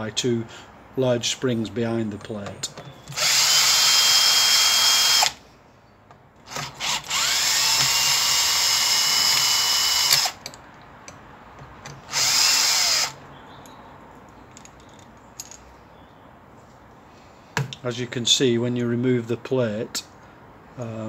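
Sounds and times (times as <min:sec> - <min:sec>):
cordless drill motor whining: 0:03.0 - 0:05.4, 0:06.5 - 0:10.4, 0:12.1 - 0:13.2.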